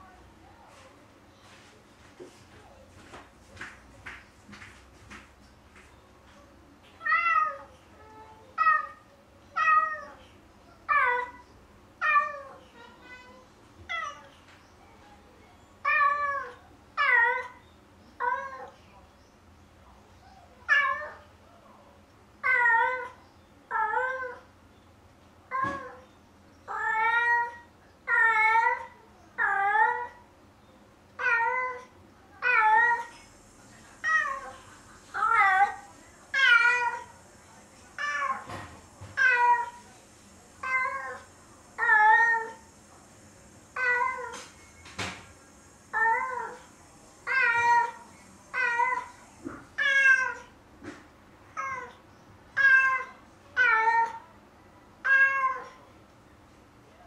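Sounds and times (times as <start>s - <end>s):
cat meowing: 49.8s - 50.5s, 52.6s - 54.2s, 55.0s - 55.8s.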